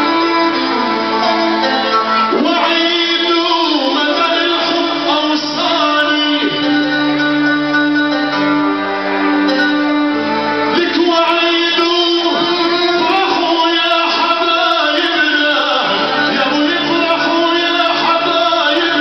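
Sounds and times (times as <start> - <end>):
violin: 0.0 - 19.0
man singing through pa system: 2.2 - 7.8, 10.6 - 19.0.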